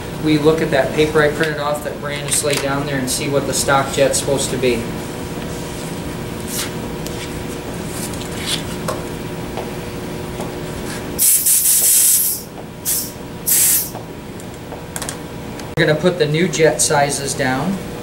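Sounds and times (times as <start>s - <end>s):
compressed air blow gun hissing: 11.2s - 13.9s.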